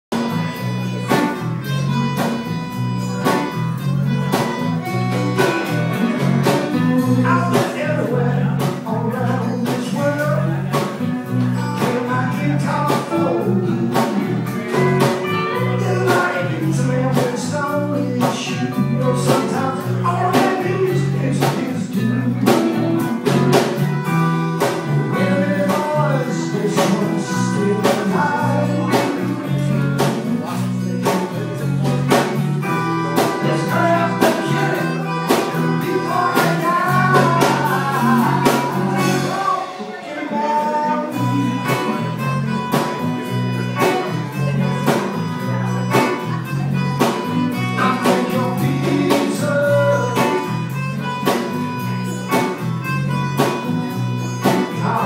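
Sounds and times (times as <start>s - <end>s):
bouncing bass line: 0.1s - 39.4s
bluegrass band playing: 0.1s - 55.0s.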